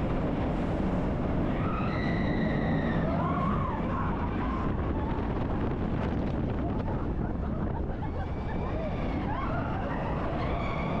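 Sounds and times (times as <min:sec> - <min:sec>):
roller coaster rumbling on track: 0:00.0 - 0:11.0.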